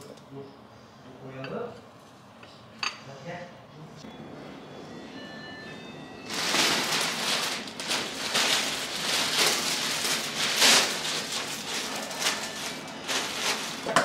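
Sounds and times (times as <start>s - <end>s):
plastic bag crinkling: 6.3s - 14.0s.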